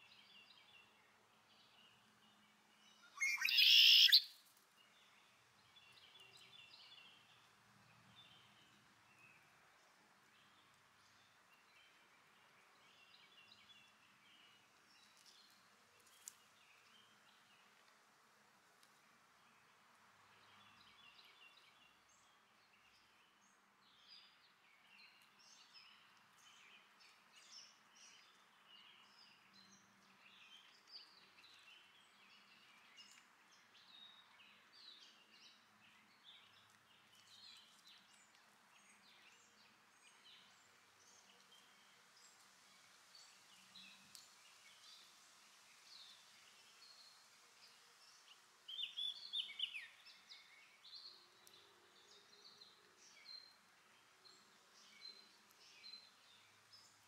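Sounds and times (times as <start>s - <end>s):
soft background hiss: 0.0s - 57.0s
birds chirping: 3.2s - 4.2s.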